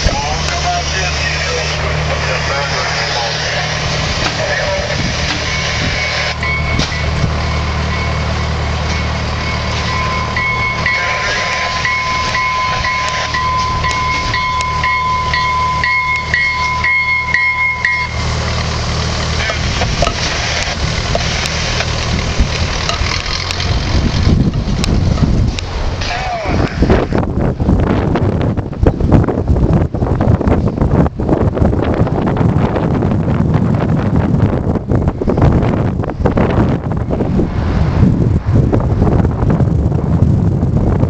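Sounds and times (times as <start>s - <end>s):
train rumble: 0.0s - 41.0s
train warning bell ringing: 5.4s - 18.2s.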